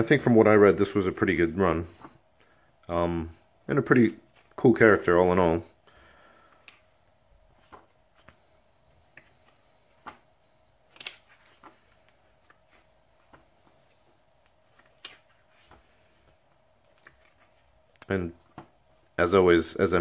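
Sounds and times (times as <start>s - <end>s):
book pages turning: 3.9s - 5.0s, 7.5s - 19.1s.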